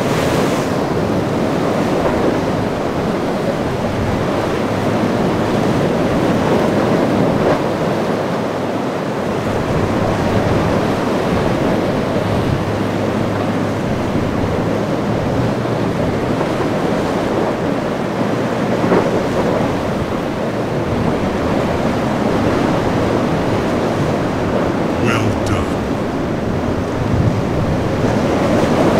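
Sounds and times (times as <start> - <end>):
boat engines droning: 0.0 - 28.9.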